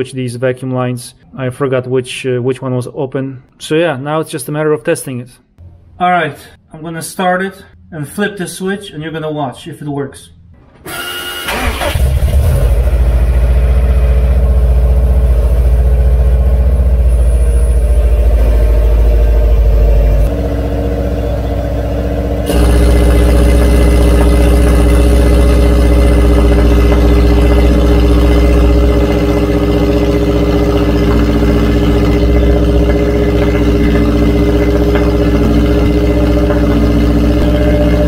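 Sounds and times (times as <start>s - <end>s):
car engine starting and running: 10.6s - 38.0s.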